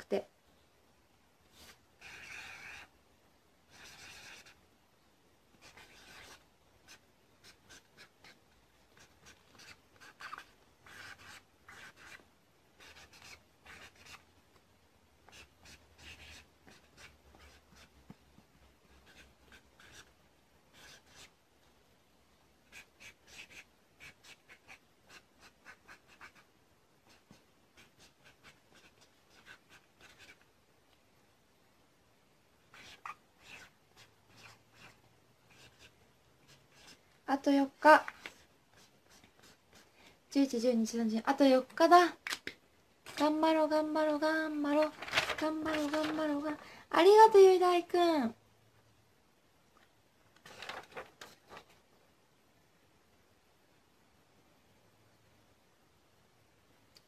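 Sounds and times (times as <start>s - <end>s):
pen scratching on paper: 1.5s - 2.9s, 3.7s - 4.6s, 5.5s - 12.2s, 12.8s - 14.3s, 15.2s - 18.2s, 18.9s - 21.4s, 22.6s - 30.5s, 32.7s - 37.0s, 37.9s - 39.9s.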